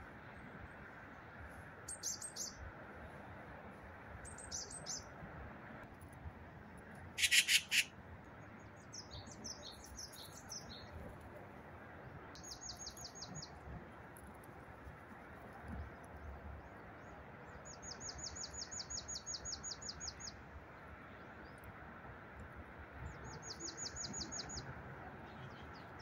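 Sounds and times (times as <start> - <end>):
distant road traffic hum: 0.0 - 26.0
birds chirping: 4.2 - 5.1, 7.2 - 7.9.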